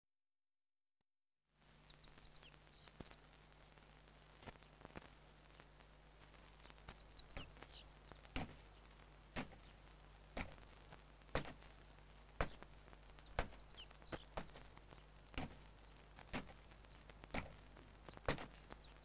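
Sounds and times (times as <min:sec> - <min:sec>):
bird chirps: 0:01.7 - 0:03.2, 0:06.6 - 0:08.9, 0:12.4 - 0:15.1, 0:18.1 - 0:19.0
soft thumps: 0:08.3 - 0:08.6, 0:09.4 - 0:09.6, 0:10.4 - 0:10.6, 0:12.4 - 0:12.7, 0:15.4 - 0:15.7.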